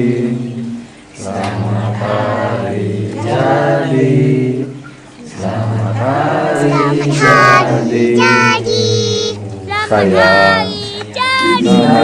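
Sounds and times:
person singing high notes: 6.6s - 11.8s.

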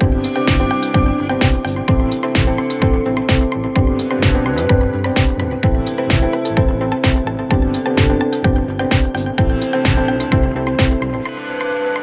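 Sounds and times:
electronic music with steady beat: 0.0s - 12.0s.

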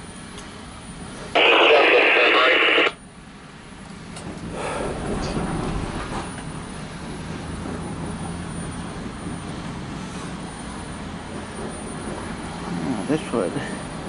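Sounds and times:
freight train rumbling past: 3.3s - 14.0s.

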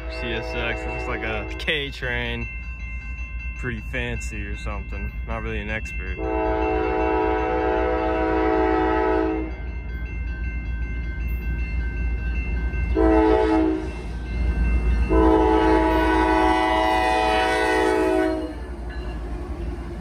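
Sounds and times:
locomotive air horn blasts: 0.0s - 1.6s, 6.2s - 9.5s, 13.0s - 13.9s, 15.1s - 18.7s
diesel locomotive rumble: 0.0s - 20.0s.

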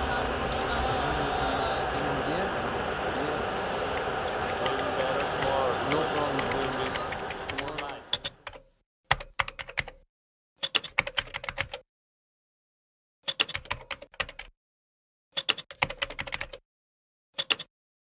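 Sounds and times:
computer keyboard typing: 3.9s - 10.0s, 10.6s - 11.8s, 13.3s - 14.5s, 15.4s - 16.6s, 17.4s - 17.7s.

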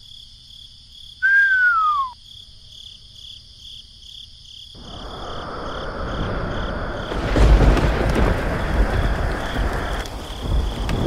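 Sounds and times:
crickets chirping: 0.0s - 11.0s
falling whistle: 1.2s - 2.2s
rain rushing: 4.8s - 11.0s.

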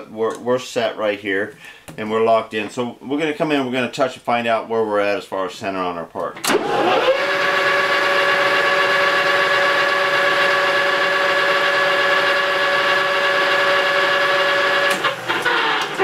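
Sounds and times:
lathe headstock whine: 6.6s - 16.0s.

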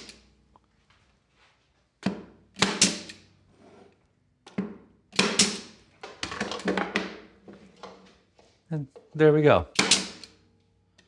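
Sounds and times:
nail gun firing into plywood: 2.0s - 3.2s, 5.1s - 7.2s, 9.8s - 10.3s.

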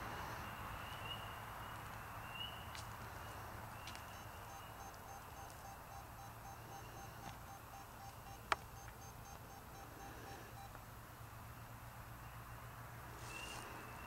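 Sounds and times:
short electronic beeps: 4.0s - 10.8s.

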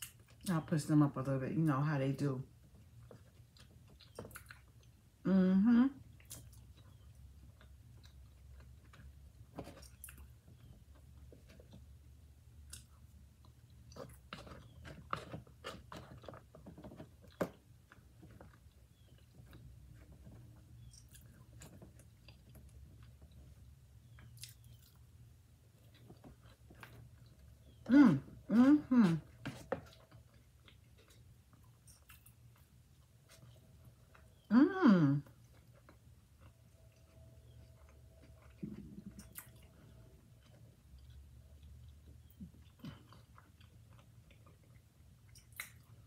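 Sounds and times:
person chewing food: 0.0s - 0.5s, 2.5s - 5.2s, 6.0s - 34.5s, 35.2s - 46.0s
person humming mmm: 5.3s - 6.0s, 27.9s - 29.2s, 34.5s - 35.3s
wet mouth clicks and smacks: 45.3s - 45.9s.

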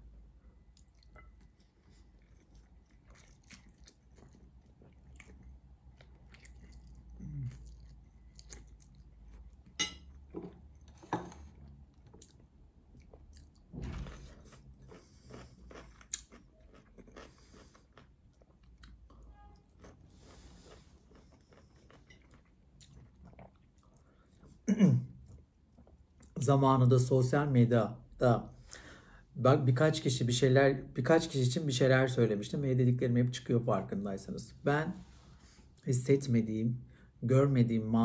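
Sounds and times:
person chewing spaghetti: 0.5s - 10.9s, 11.5s - 13.7s, 14.3s - 24.6s.

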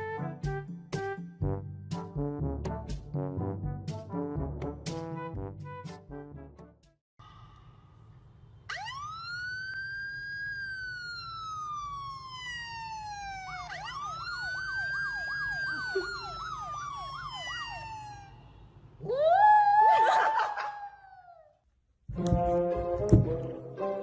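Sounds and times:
electronic police siren: 8.7s - 18.6s.

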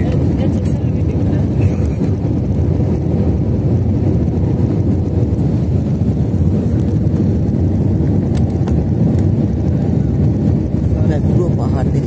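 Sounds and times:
jet engines rumbling in cabin: 0.0s - 12.0s
rushing air: 0.0s - 12.0s.

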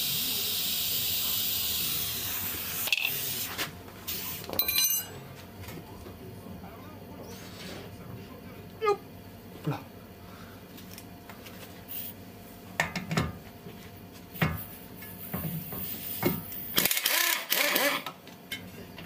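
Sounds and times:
metal tool clinks and knocks: 4.5s - 5.2s
impact wrench burst: 16.7s - 18.1s.

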